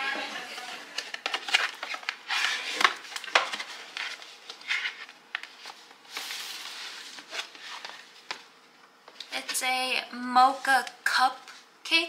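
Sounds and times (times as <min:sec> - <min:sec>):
cardboard rustling and scraping: 0:01.0 - 0:08.4.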